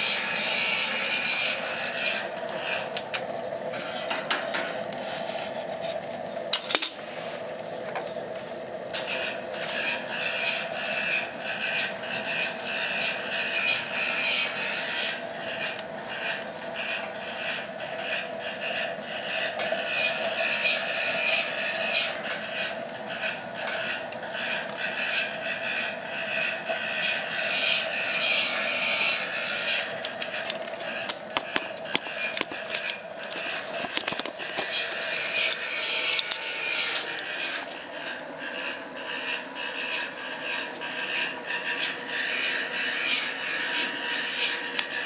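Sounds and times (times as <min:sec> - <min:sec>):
fan hum: 0:00.0 - 0:45.0.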